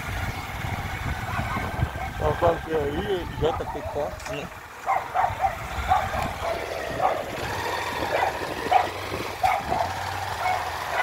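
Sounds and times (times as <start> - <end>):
vehicle engine hum: 0.0 - 11.0
dog barking: 1.3 - 2.2, 3.4 - 4.2, 4.8 - 7.4, 8.0 - 11.0.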